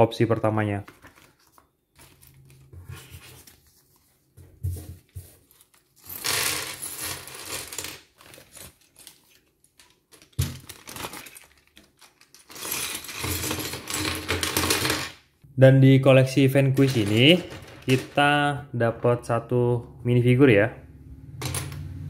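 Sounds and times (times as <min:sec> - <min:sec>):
plastic bag crinkling and tearing: 0:08.0 - 0:12.6
plastic bricks clattering on table: 0:09.7 - 0:15.2, 0:16.8 - 0:18.5.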